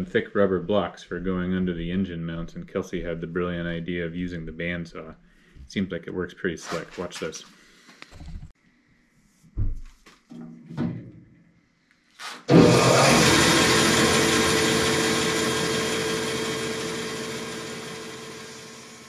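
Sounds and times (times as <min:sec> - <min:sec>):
bandsaw cutting rubber: 0:12.2 - 0:19.0.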